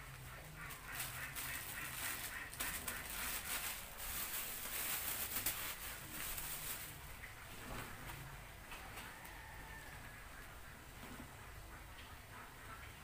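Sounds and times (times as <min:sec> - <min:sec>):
plastic bag crinkling: 0:00.7 - 0:07.3.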